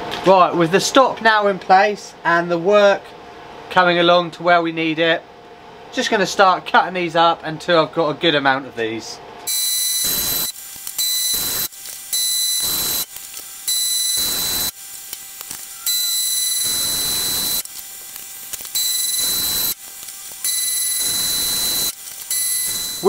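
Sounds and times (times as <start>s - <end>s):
bandsaw cutting steel: 9.5s - 23.0s.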